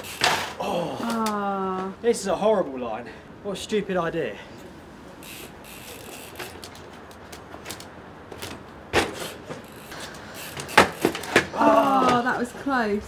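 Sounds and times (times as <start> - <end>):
bike landing impacts on brick: 0.0 - 0.6, 7.6 - 12.3
bike tyre scuffs and clicks: 0.0 - 0.6, 5.2 - 12.2.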